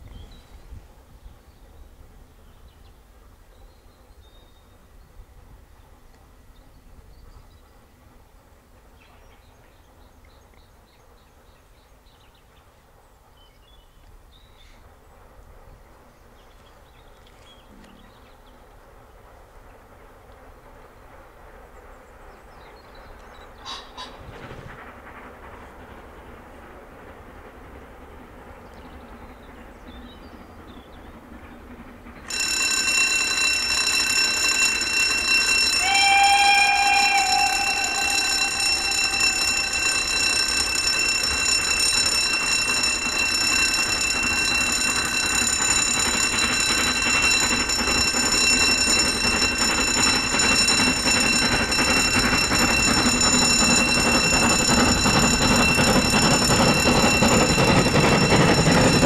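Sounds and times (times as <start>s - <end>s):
steam locomotive working hard: 0.0s - 59.0s
train whistle: 23.6s - 24.3s, 35.6s - 40.2s.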